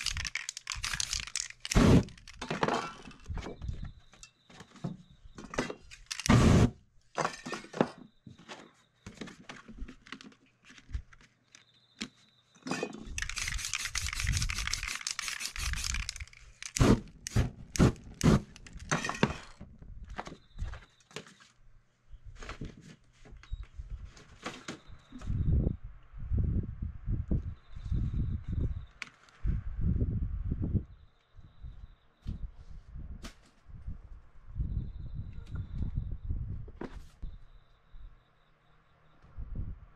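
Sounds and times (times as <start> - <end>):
spray paint can hissing: 13.2 - 18.4.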